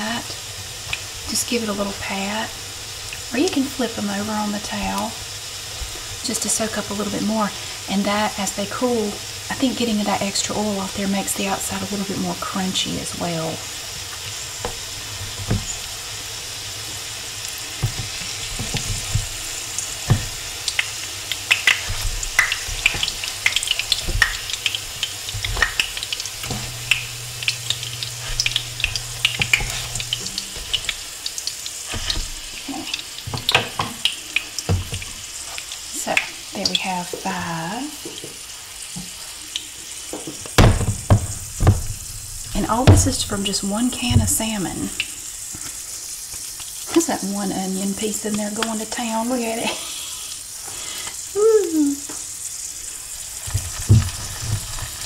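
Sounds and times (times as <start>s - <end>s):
patties sizzling in oil: 0.0s - 55.0s
spatula scraping pan: 17.7s - 33.8s.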